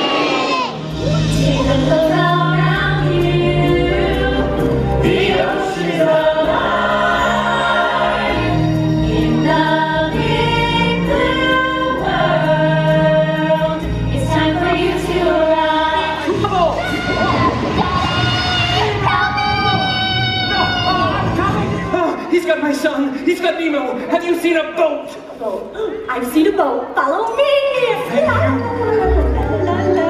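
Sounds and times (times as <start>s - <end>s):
chorus of voices singing: 0.0s - 19.1s
backing music with held low notes: 0.8s - 17.8s.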